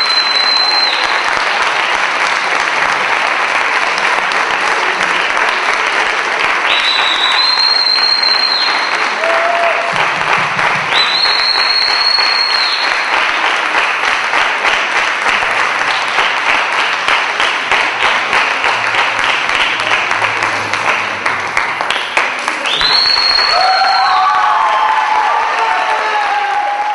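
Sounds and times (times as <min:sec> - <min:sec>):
high whistles: 0:00.0 - 0:01.2, 0:06.6 - 0:09.1, 0:10.9 - 0:13.2, 0:22.6 - 0:24.6
audience applauding: 0:00.0 - 0:26.9.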